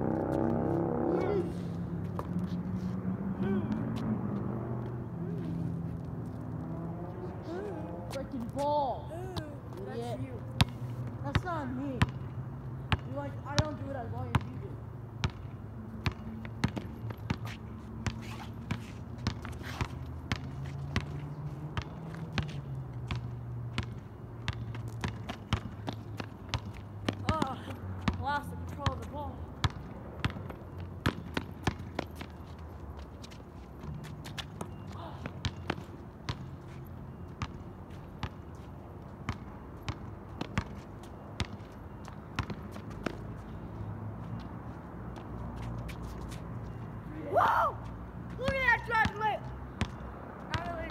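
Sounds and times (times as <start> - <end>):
basketball bouncing on asphalt: 1.9 - 2.6, 8.2 - 46.8, 48.2 - 50.9
footsteps and shoe scuffs: 2.0 - 3.2, 17.4 - 21.7, 44.2 - 46.8.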